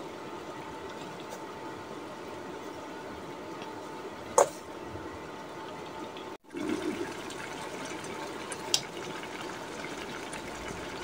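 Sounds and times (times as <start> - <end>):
broth bubbling: 6.4 - 11.0.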